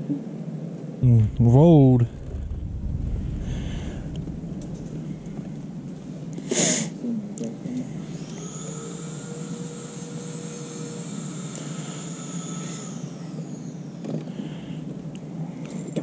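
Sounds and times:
electric boat motor whining: 8.0 - 14.3.

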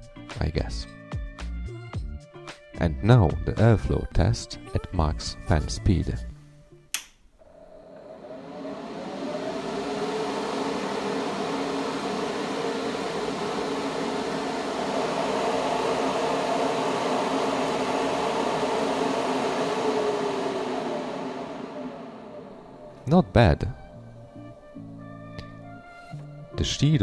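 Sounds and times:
exhaust fans whirring: 7.4 - 27.0.

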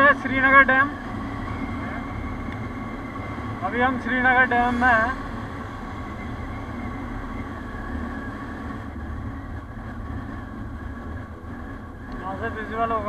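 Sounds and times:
motorcycle engine droning: 0.0 - 13.0
wind and road noise: 0.0 - 13.0.

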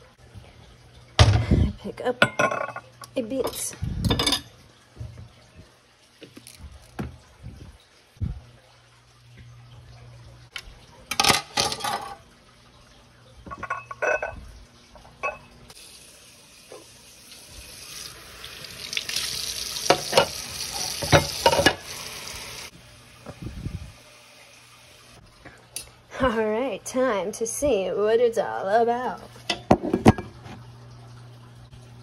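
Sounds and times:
kitchenware knocks and clinks: 2.2 - 5.2, 11.1 - 12.2, 13.4 - 14.4, 19.9 - 21.8, 29.5 - 30.4.

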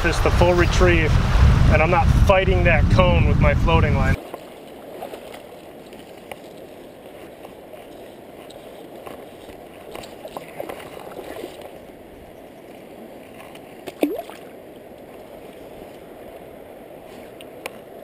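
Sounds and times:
stream water flowing: 4.2 - 18.0
sharp water splash: 13.8 - 14.5.

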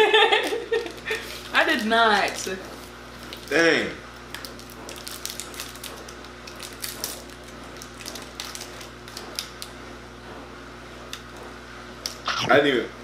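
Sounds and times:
plastic candy wrapper crackling: 4.3 - 9.7
low hum: 12.3 - 12.7.

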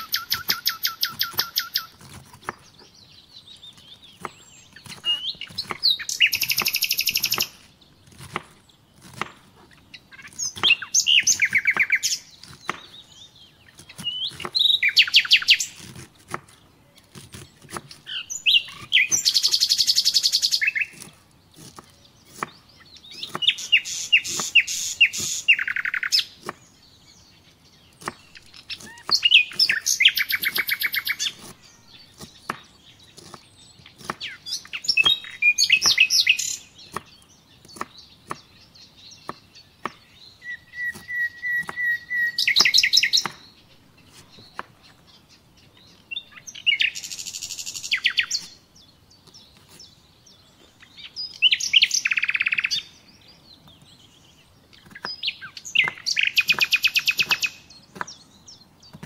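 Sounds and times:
songbird singing trilled phrases: 0.0 - 59.0
knife chopping on wooden board: 1.1 - 2.8, 4.2 - 10.8, 11.4 - 13.0, 13.8 - 14.6, 15.8 - 18.1, 20.9 - 22.6, 23.2 - 23.5, 26.4 - 26.6, 28.0 - 29.8, 31.3 - 33.4, 34.0 - 34.4, 36.8 - 38.5, 39.2 - 40.0, 40.9 - 41.9, 42.6 - 43.4, 55.8 - 58.2.

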